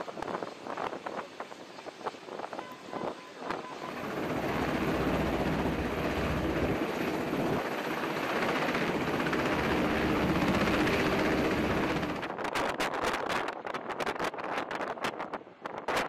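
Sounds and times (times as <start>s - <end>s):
helicopter rotor and engine: 0.0s - 12.5s.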